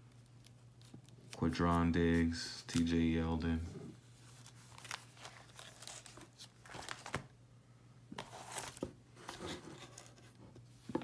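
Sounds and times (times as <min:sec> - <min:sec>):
plastic sleeve pages crinkling: 0:00.0 - 0:03.2, 0:04.2 - 0:07.3.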